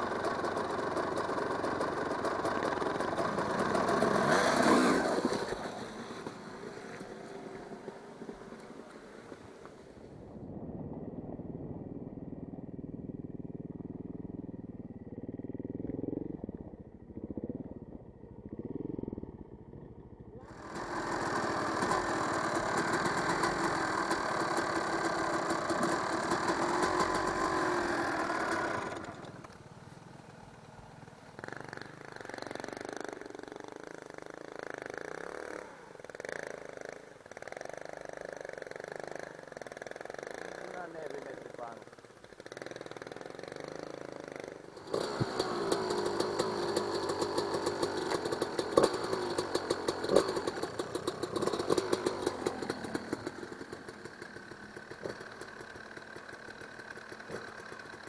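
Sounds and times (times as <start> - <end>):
loud harsh engine close by: 0.0 - 9.9, 20.4 - 58.0
dirt bike engines revving: 0.0 - 10.4, 11.4 - 58.0.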